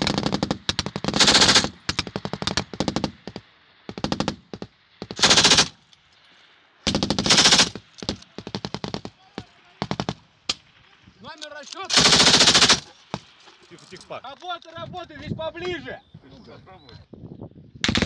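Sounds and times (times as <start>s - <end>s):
machine-gun fire in bursts: 0.0s - 5.8s, 6.8s - 9.2s, 9.8s - 10.2s, 11.9s - 12.9s.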